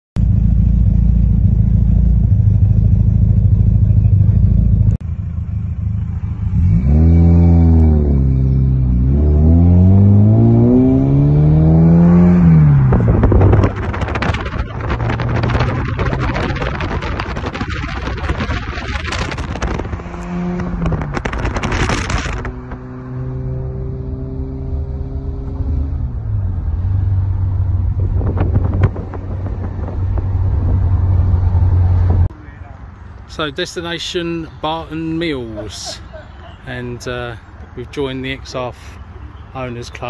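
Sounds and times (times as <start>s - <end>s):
car engine idling: 0.2s - 6.5s
car engine accelerating: 0.2s - 32.6s
road and wind noise: 0.2s - 40.0s.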